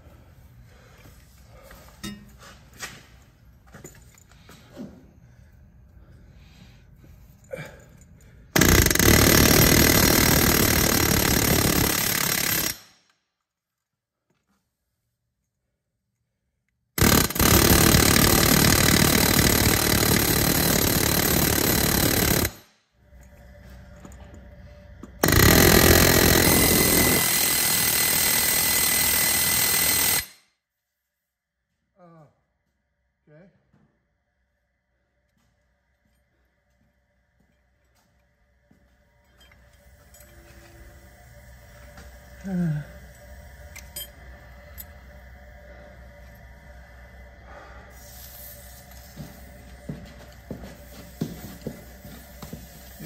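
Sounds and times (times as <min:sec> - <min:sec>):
pneumatic air hammer rattling: 0:08.6 - 0:13.0, 0:17.0 - 0:22.7, 0:25.1 - 0:30.3.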